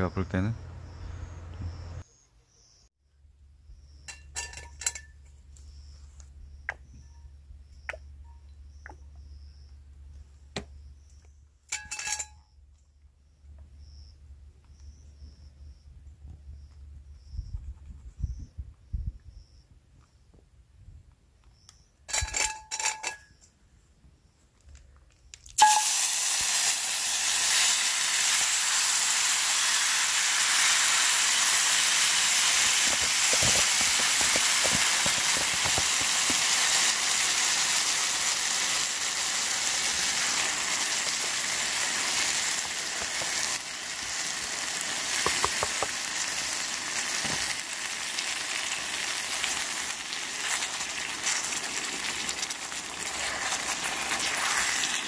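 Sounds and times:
short ringing notes: 25.6 - 26.2
food sizzling in a hot pan: 25.6 - 55.0.

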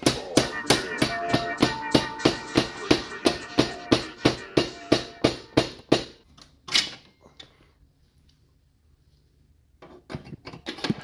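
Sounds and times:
hammer blows on metal: 0.0 - 5.9.

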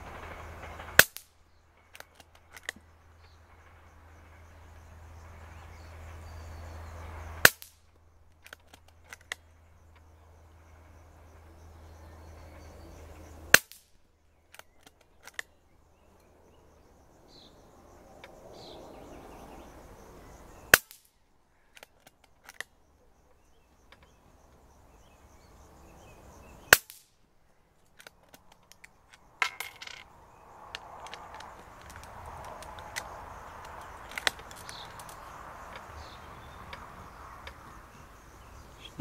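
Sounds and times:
rifle mechanism clicks and knocks: 1.9 - 2.9, 8.4 - 10.1, 14.5 - 15.6, 21.7 - 22.8, 27.8 - 30.1, 30.7 - 35.9
air rifle shots: 26.7 - 27.1.

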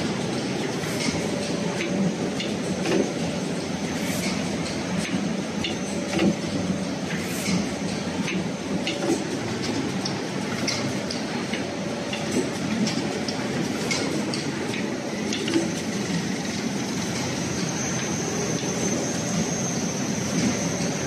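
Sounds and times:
machine mechanical hum: 0.0 - 21.0.

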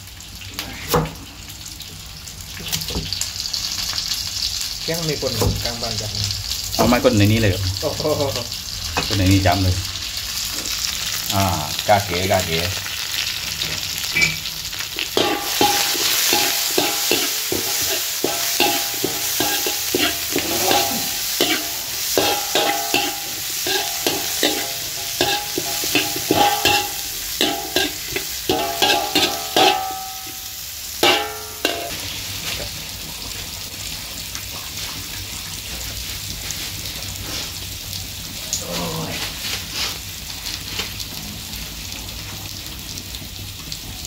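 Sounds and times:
food sizzling in a wok: 0.0 - 44.0
metal spatula scraping a wok: 15.2 - 32.7.

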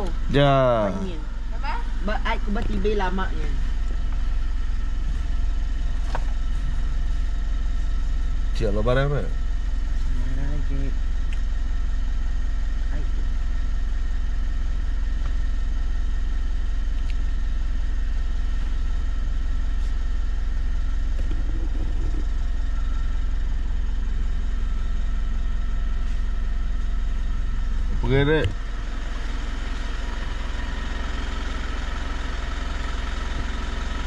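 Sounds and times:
car engine idling: 0.0 - 34.0.

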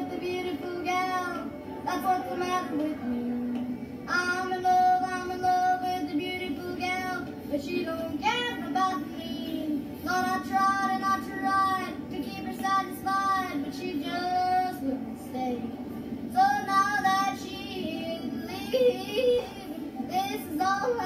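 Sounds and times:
boy yodeling through tv speaker: 16.4 - 21.0.

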